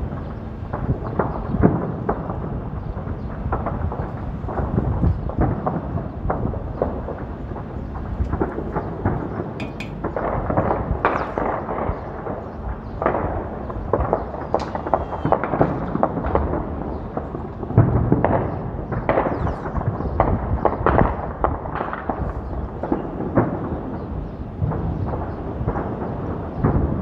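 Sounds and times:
gunfire: 0:08.3 - 0:27.0
loud gunshot bangs: 0:08.3 - 0:27.0.

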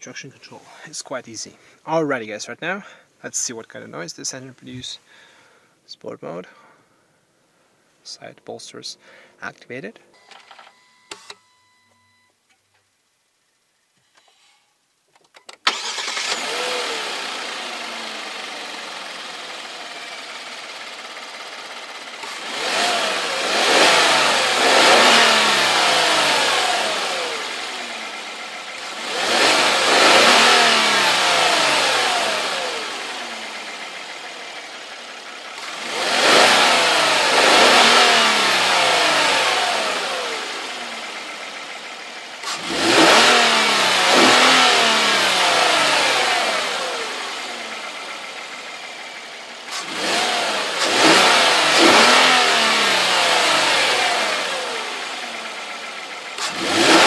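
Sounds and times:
car engine idling: 0:15.7 - 0:57.0
car engine revving: 0:15.7 - 0:57.0.

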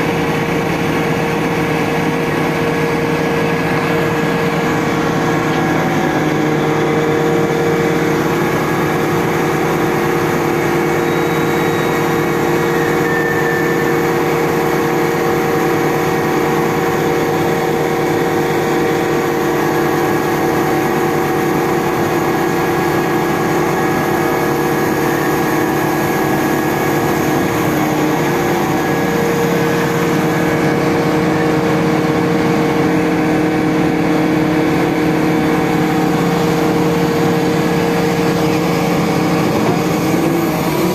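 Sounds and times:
crane engine running: 0:00.0 - 0:40.9
steady whining tones: 0:00.1 - 0:40.9.

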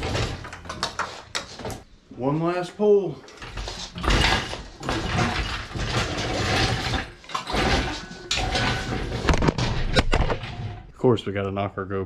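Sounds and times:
hoist chain rattling and clanking: 0:03.4 - 0:10.8.

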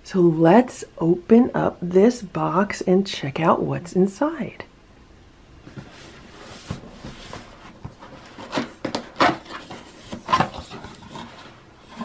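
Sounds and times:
cardboard rubbing and scraping: 0:05.7 - 0:12.0.

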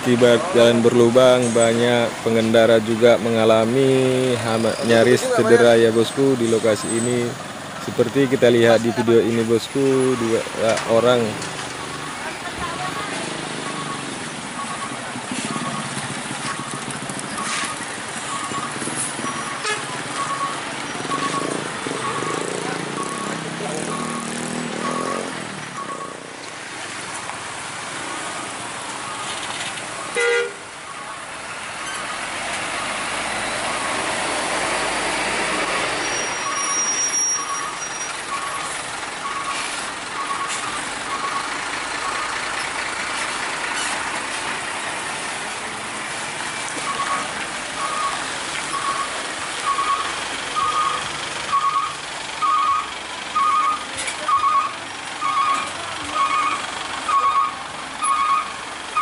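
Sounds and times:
trucks and motorbikes passing: 0:00.0 - 0:59.0
high electronic beep: 0:13.6 - 0:26.2, 0:35.7 - 0:42.3, 0:46.8 - 0:58.6
horn toot: 0:19.5 - 0:19.9, 0:30.1 - 0:30.7.

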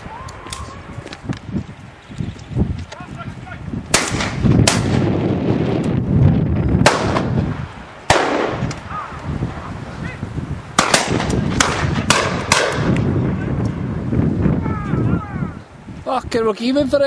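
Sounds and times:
shotgun shots echoing: 0:03.9 - 0:05.1, 0:06.8 - 0:07.4, 0:08.1 - 0:08.7, 0:10.8 - 0:13.0.

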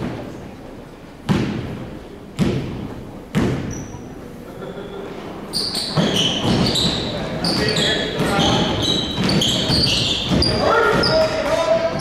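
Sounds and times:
sneakers squeaking: 0:02.4 - 0:12.0
basketball bouncing on wooden floor: 0:06.0 - 0:11.3.

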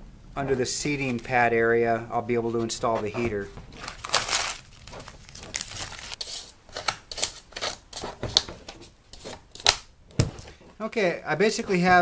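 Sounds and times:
tape peeling and tearing: 0:03.8 - 0:08.5.

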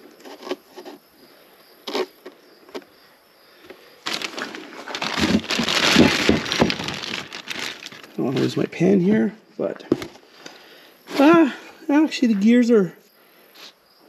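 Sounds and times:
plastic bag crinkling: 0:04.0 - 0:08.5.

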